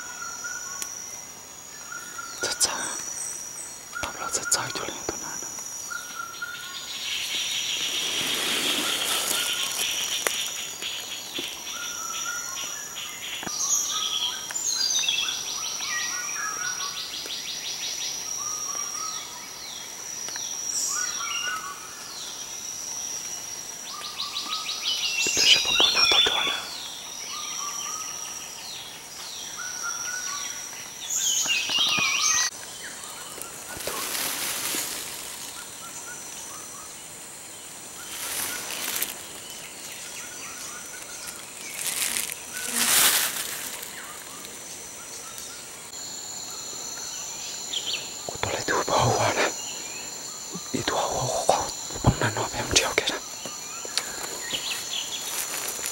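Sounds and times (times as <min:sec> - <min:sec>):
high insect drone: 0:00.0 - 0:55.9
bird chirps and calls: 0:25.2 - 0:26.7.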